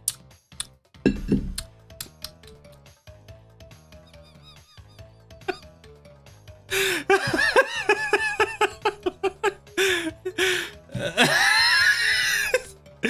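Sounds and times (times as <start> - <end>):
person laughing: 4.0 - 5.8, 6.7 - 12.7.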